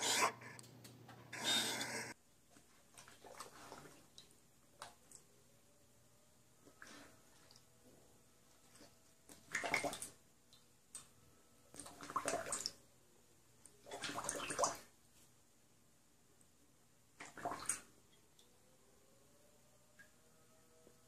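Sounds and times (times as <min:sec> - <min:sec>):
dog lapping water from metal bowl: 0:09.5 - 0:10.1, 0:11.8 - 0:12.7, 0:13.9 - 0:14.8.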